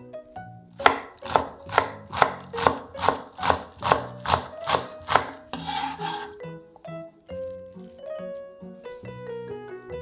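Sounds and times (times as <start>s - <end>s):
knife chopping on wooden board: 0.8s - 6.3s
short rasping scrape: 5.5s - 6.4s.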